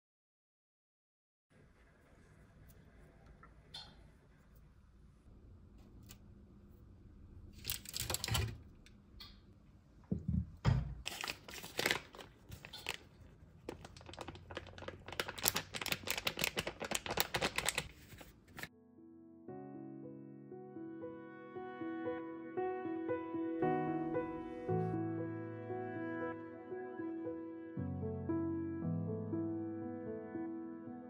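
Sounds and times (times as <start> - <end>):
paper bag crinkling: 7.5 - 8.6, 11.0 - 18.7
powder shaken from paper bag: 11.1 - 18.7.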